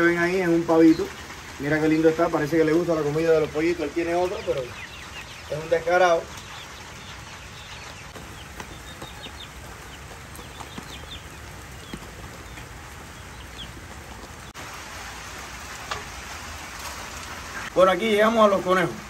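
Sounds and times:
chicks peeping: 0.0s - 14.6s
rain hiss: 0.0s - 19.0s.

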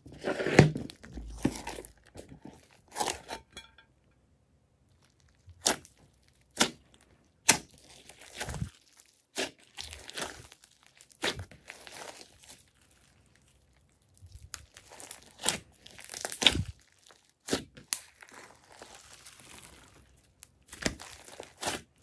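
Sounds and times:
slime squelching and popping: 4.9s - 22.0s.

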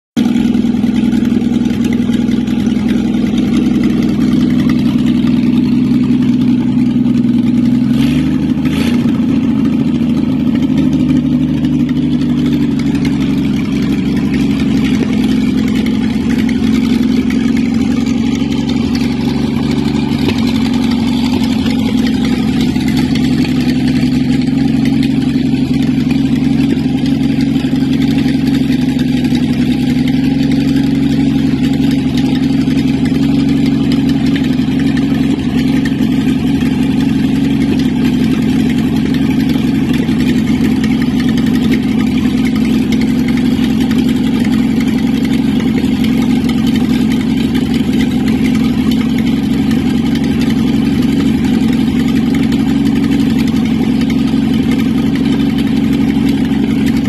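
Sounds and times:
petrol engine idling: 0.2s - 57.0s.

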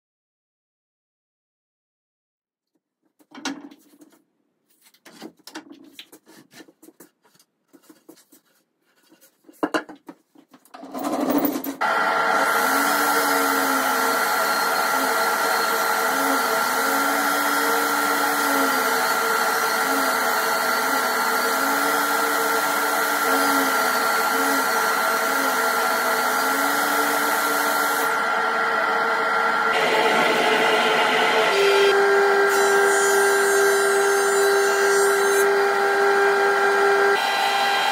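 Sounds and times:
woodworking jointer whining: 11.8s - 37.9s.

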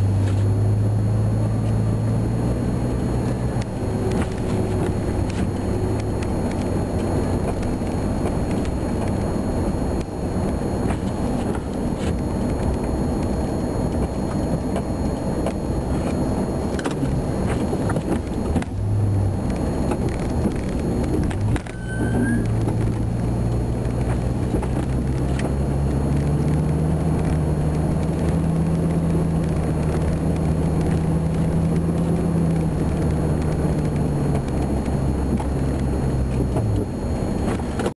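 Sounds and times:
truck engine drone: 0.0s - 38.0s.

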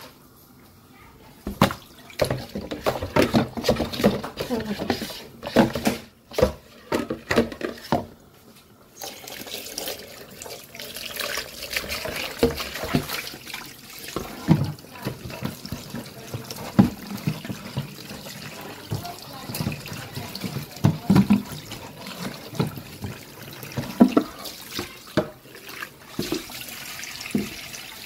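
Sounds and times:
tap water running into bowl: 1.4s - 8.1s, 9.0s - 28.0s.

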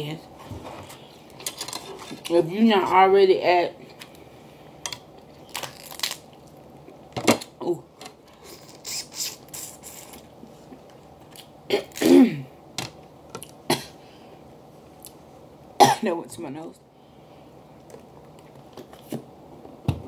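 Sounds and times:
crab shell cracking: 4.9s - 6.4s
person coughing: 11.7s - 12.5s, 13.7s - 14.0s, 15.8s - 16.1s.

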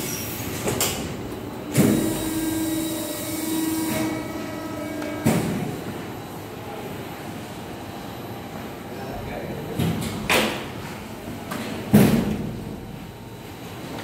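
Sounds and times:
machine motor humming: 0.2s - 6.2s.

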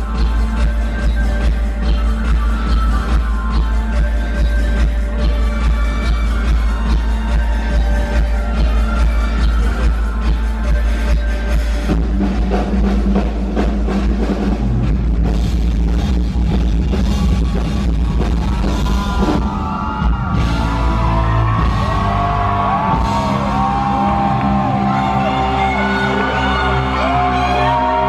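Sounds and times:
drum kit: 0.0s - 28.0s.

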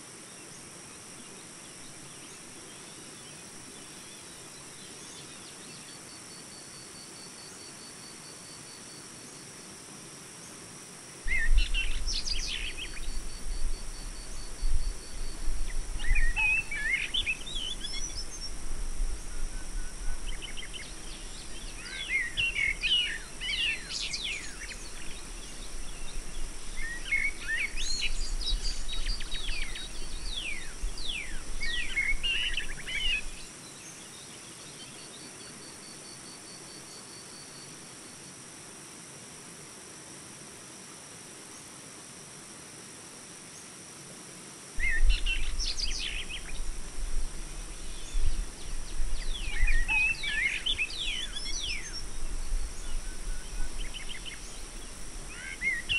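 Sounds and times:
faint steady hiss: 0.0s - 55.9s
birds chirping: 14.1s - 18.6s, 47.4s - 55.9s.

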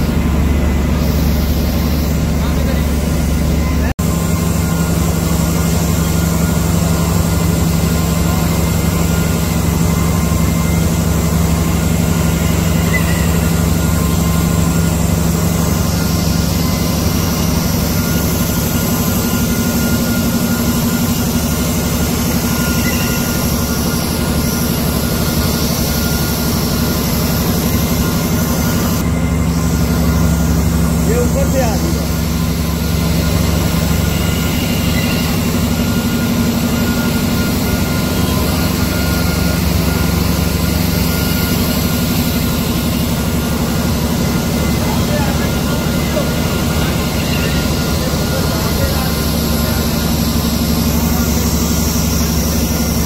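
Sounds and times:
faint high machine whines: 0.0s - 53.0s
machine low mechanical drone: 0.0s - 53.0s.

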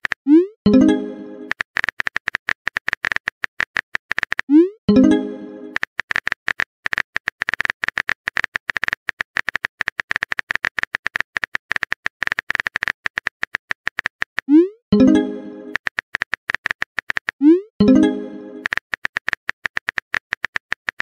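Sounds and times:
message sent chime: 0.7s - 1.5s, 4.9s - 5.8s, 15.0s - 15.8s, 17.8s - 18.7s.

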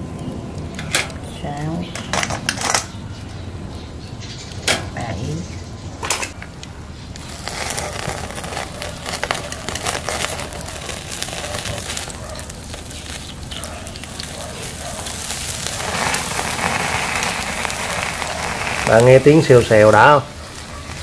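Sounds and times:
oil sizzling on grill: 7.1s - 21.0s.

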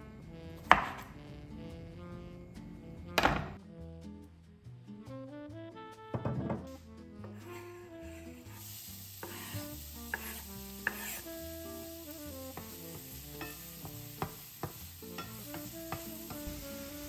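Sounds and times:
soft background music: 0.0s - 17.0s
food sizzling in a pan: 7.2s - 17.0s
utensil tapping pan: 9.2s - 11.2s, 12.5s - 16.6s.

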